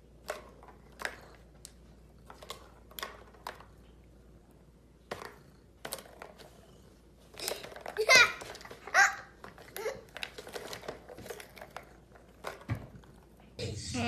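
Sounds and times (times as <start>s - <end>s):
plastic balls clicking in toy track: 7.3s - 12.7s.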